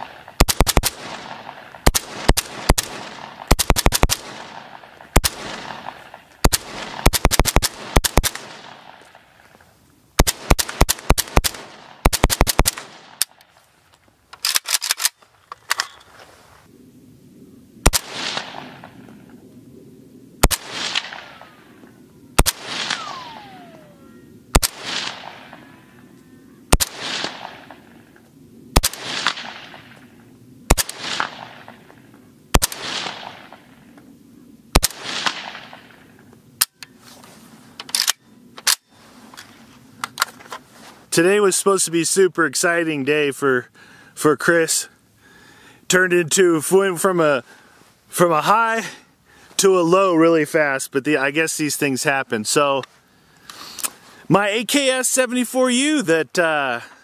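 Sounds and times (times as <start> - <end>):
rifle shots with echo: 0.0 - 9.4, 10.2 - 13.4, 17.8 - 19.2, 20.4 - 21.8, 22.4 - 26.1, 26.7 - 28.1, 28.7 - 33.8, 34.7 - 36.2.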